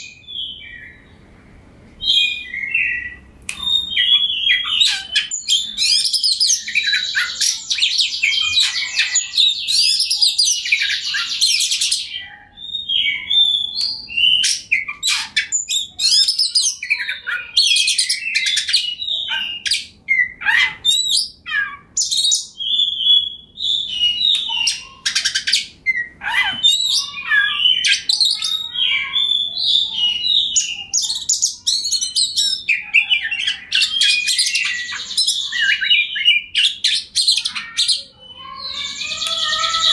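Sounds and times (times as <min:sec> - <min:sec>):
bird singing varied song: 0:00.0 - 0:39.9.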